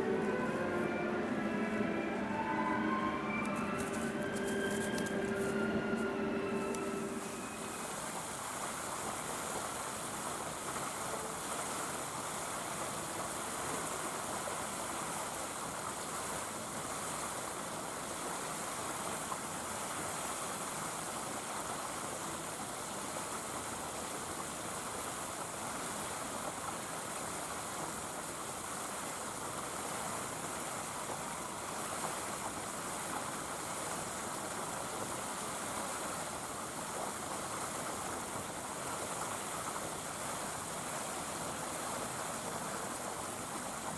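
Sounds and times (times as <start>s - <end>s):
steady rushing noise: 0.0s - 19.8s.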